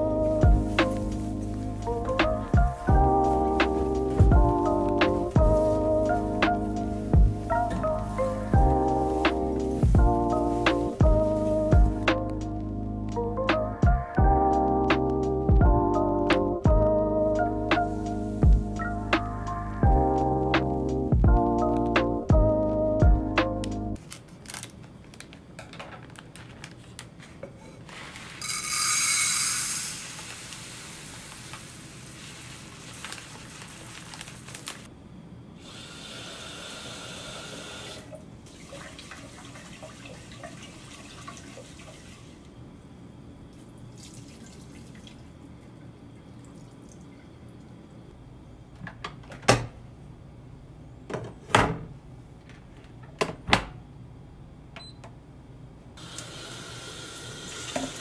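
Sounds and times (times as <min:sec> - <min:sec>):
water sloshing in a pot: 0:38.5 - 0:42.4, 0:43.9 - 0:47.7.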